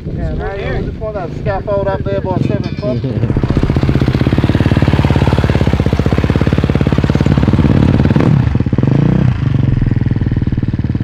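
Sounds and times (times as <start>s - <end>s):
motorbike engine idling and revving: 0.0s - 11.0s.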